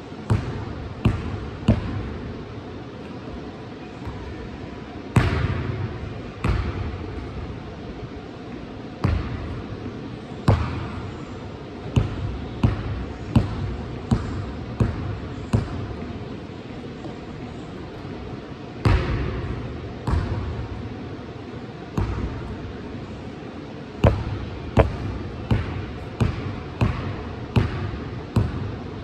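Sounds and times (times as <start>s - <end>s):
basketball bouncing on gym floor: 0.2s - 2.2s, 5.1s - 7.2s, 9.0s - 9.6s, 10.5s - 11.1s, 11.8s - 16.0s, 18.8s - 20.7s, 21.9s - 22.5s, 24.0s - 28.9s.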